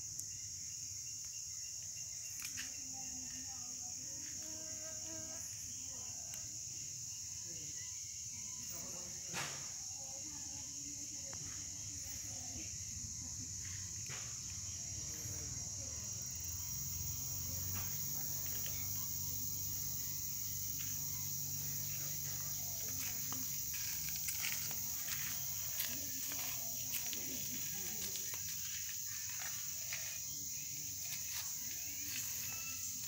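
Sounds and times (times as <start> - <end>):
insects chirring: 0.0 - 33.0.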